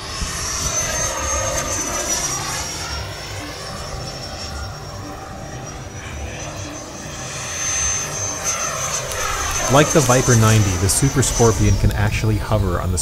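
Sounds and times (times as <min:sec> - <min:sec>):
ducted-fan jet whine: 0:00.0 - 0:13.0
low uneven rumble: 0:09.0 - 0:13.0.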